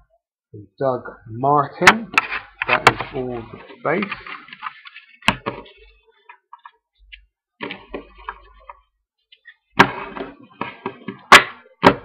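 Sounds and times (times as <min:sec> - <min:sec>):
trading cards shuffling: 0:02.3 - 0:08.6.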